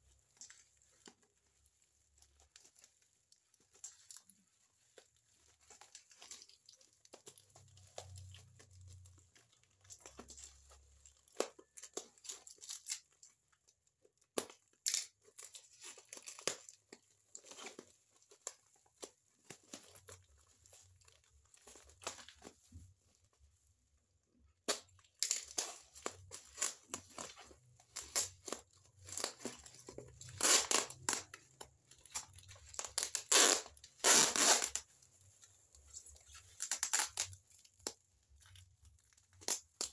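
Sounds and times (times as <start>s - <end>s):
plastic crinkling: 0.0s - 39.9s
packing tape ripping: 24.6s - 34.9s, 36.5s - 37.4s.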